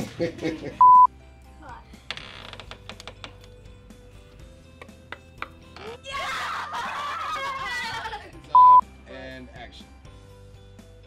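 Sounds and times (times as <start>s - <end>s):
child shrieking: 5.9s - 8.1s.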